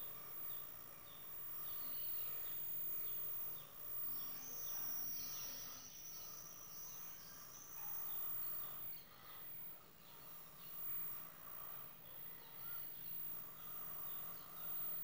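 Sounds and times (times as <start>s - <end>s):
high steady insect trill: 0.0s - 15.0s.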